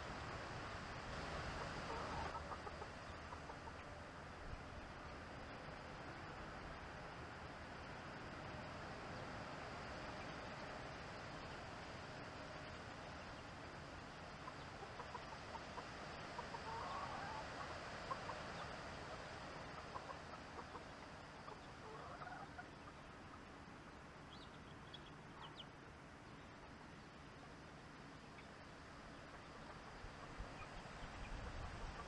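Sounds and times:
chickens clucking: 1.4s - 4.1s, 14.4s - 23.6s, 29.2s - 32.0s.

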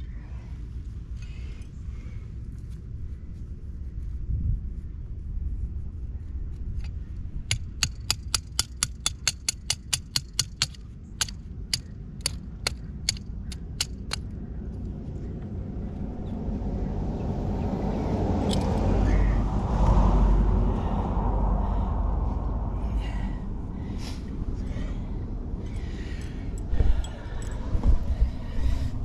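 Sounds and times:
low steady rumble: 0.0s - 29.0s
hand tools clicking on pipe fittings: 7.5s - 14.2s.

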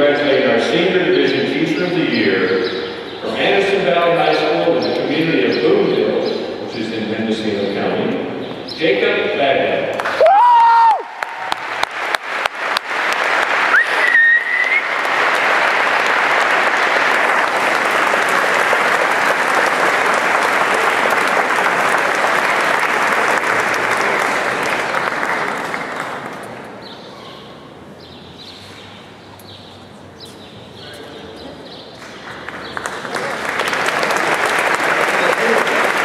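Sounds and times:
audience applauding: 10.0s - 26.7s, 32.0s - 36.0s.

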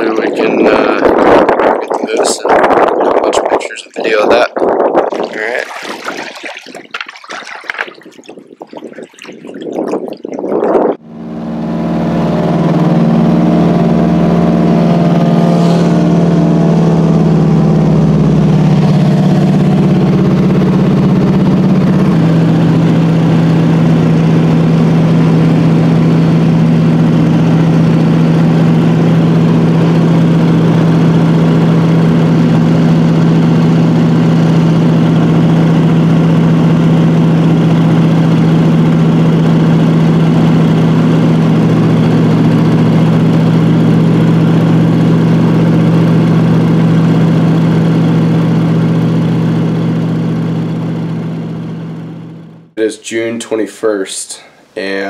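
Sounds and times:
plane engine and propeller droning: 10.7s - 52.5s.

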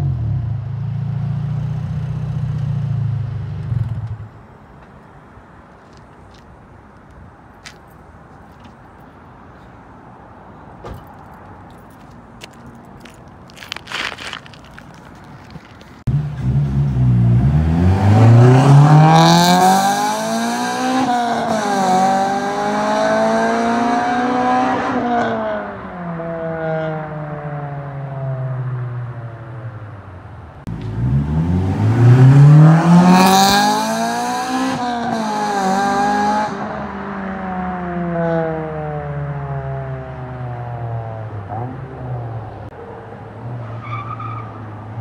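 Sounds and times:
car engine accelerating hard: 16.1s - 25.5s, 30.7s - 37.2s.

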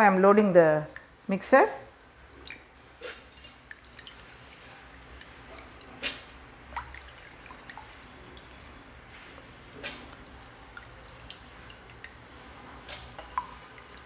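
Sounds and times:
water dripping and splashing: 1.9s - 14.0s.

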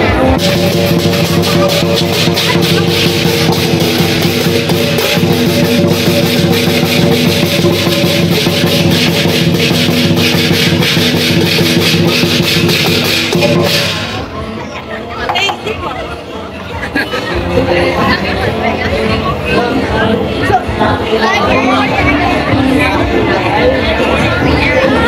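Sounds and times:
cymbals clashing: 0.0s - 14.3s
drum beating: 0.0s - 14.5s.

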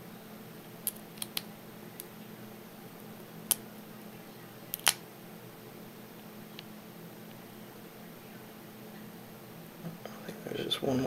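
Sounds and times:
lock pins clicking: 4.7s - 5.0s.

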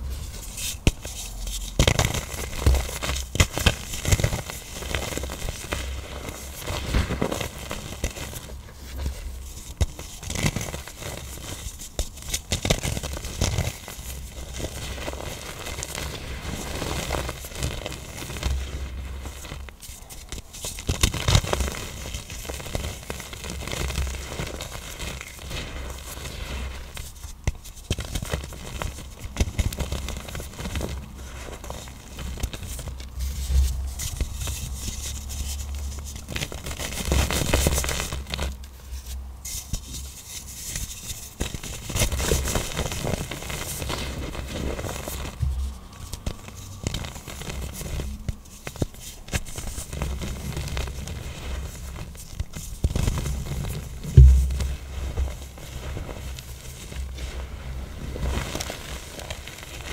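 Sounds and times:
blocks crunching and crackling: 0.0s - 59.9s.

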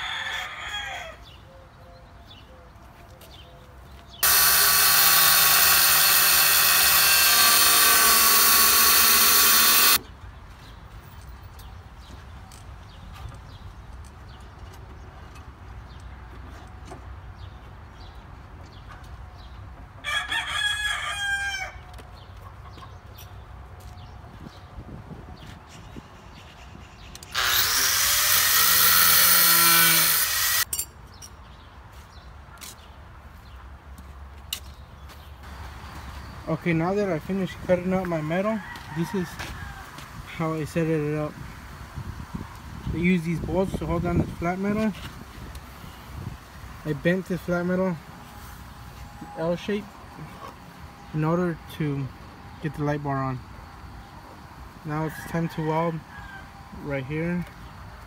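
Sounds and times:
power tool cutting steel: 4.2s - 10.0s, 27.3s - 30.7s.

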